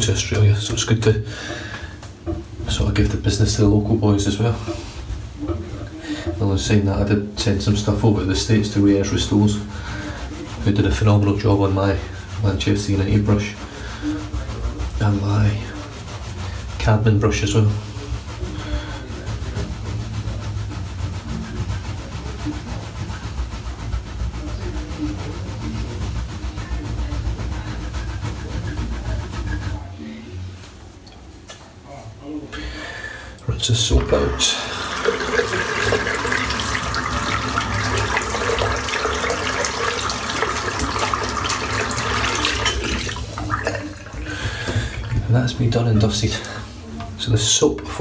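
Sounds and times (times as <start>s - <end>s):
tap water running into basin: 0.0s - 16.7s, 33.4s - 48.0s.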